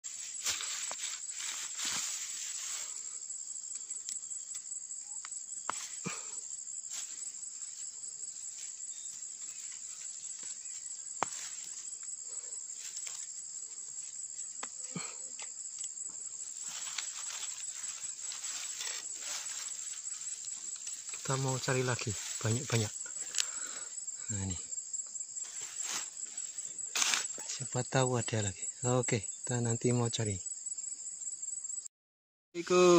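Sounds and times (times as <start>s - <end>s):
high-pitched insect chorus: 0.0s - 31.9s, 32.6s - 32.9s
soft rustles: 0.1s - 3.1s, 16.5s - 21.2s, 25.4s - 27.3s.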